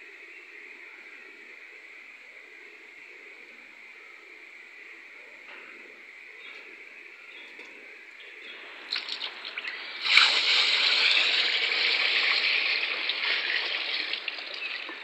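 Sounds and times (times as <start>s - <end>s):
oil pouring into bucket: 8.8s - 15.0s.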